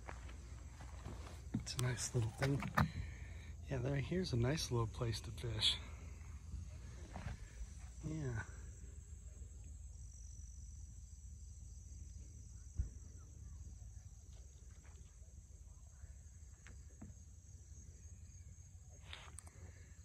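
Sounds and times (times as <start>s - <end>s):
high insect drone: 0.0s - 20.0s.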